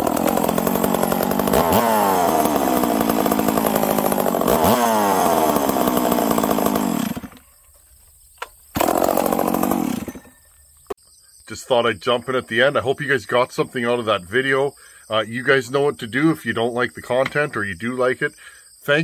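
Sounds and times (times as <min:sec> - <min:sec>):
chainsaw running with throttle blips: 0:00.0 - 0:07.4, 0:08.8 - 0:10.4
chainsaw pull start: 0:00.0 - 0:07.5, 0:08.7 - 0:10.5.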